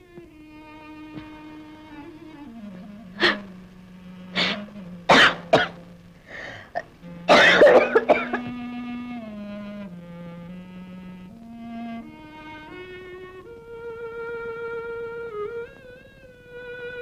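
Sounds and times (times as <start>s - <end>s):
soft held string music: 0.0s - 17.0s
woman coughing: 4.4s - 5.7s, 7.3s - 8.4s.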